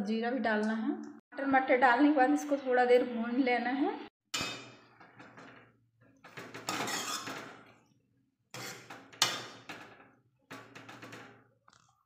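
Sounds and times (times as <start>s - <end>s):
steel ladle scraping metal pan: 6.6s - 7.7s, 8.6s - 9.7s.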